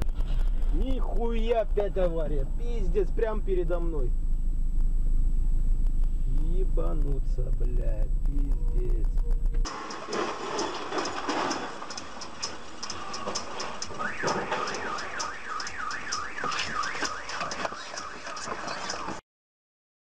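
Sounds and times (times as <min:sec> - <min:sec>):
car alarm siren warbling: 0:09.7 - 0:19.2.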